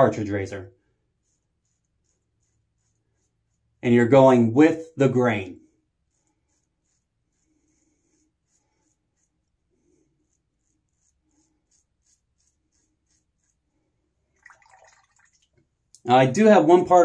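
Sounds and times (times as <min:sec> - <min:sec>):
razor scraping stubble: 0:05.8 - 0:13.7.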